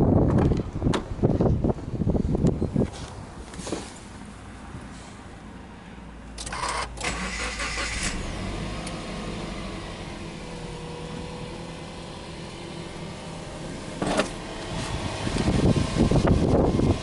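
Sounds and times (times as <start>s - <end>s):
car engine idling: 4.0s - 17.0s
starter motor cranking: 6.4s - 8.2s.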